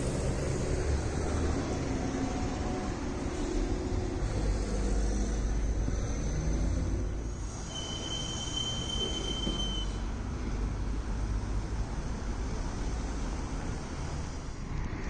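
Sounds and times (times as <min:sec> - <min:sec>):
street traffic rumbling: 0:00.0 - 0:15.0
thin high squeal: 0:07.4 - 0:10.1.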